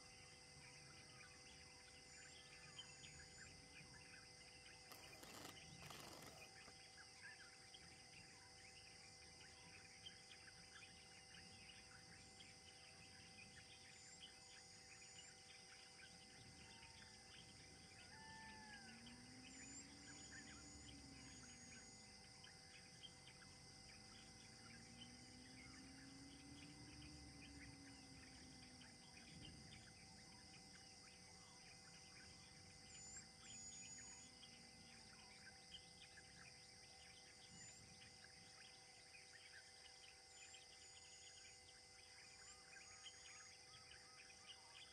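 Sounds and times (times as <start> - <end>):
insect hum: 0.0 - 44.9
high bird chirps: 4.9 - 6.6
faint low drone: 6.2 - 44.9.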